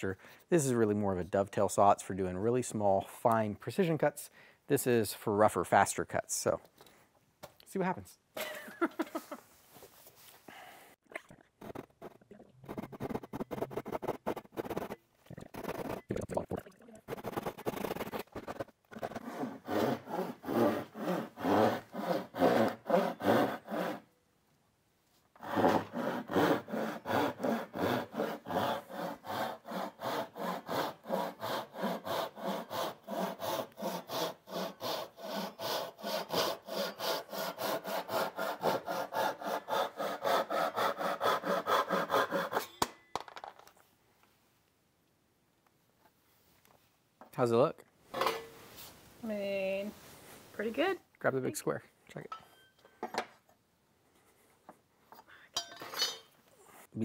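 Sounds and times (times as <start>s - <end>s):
hand saw cutting wood: 11.6s - 16.1s, 17.1s - 24.1s, 25.4s - 42.7s.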